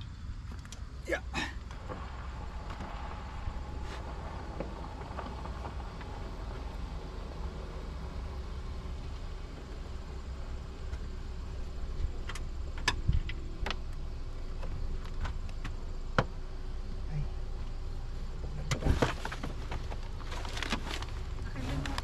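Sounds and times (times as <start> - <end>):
low rumble: 0.0 - 22.0
clicks and knocks of handling car parts: 12.0 - 16.4.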